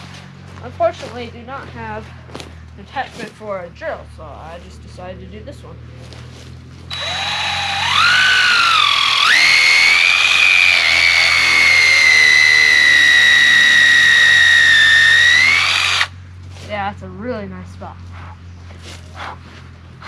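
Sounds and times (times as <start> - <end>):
cordless drill boring into wood: 6.9 - 16.1.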